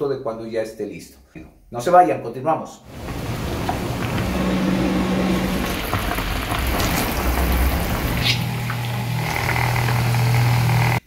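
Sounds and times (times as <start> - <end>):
syrup boiling and bubbling: 2.9 - 11.0.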